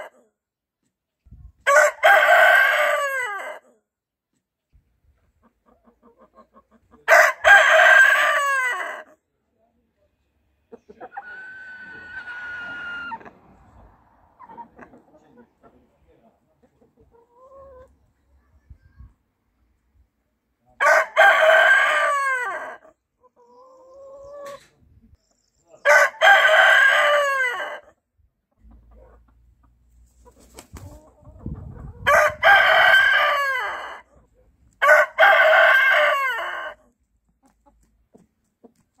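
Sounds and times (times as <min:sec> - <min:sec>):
rooster crowing: 0:01.7 - 0:03.6, 0:11.1 - 0:13.4, 0:20.8 - 0:22.8, 0:25.9 - 0:27.9, 0:32.1 - 0:34.0, 0:34.8 - 0:36.8
hens calling: 0:10.7 - 0:15.9.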